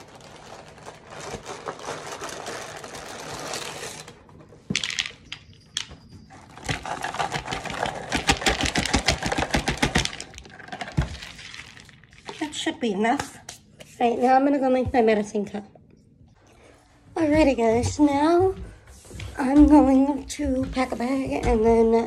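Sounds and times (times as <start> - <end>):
cereal pouring into bowl: 6.7 - 12.6.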